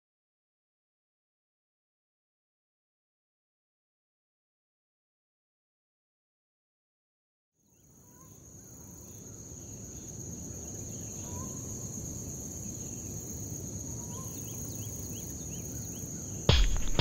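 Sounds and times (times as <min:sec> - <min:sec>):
crickets trilling and chirping: 0:07.6 - 0:16.5.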